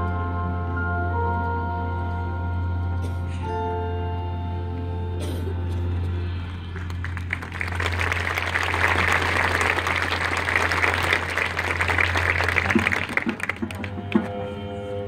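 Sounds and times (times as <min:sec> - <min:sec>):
steady low tone: 0:00.0 - 0:15.0
audience applauding: 0:06.7 - 0:14.2.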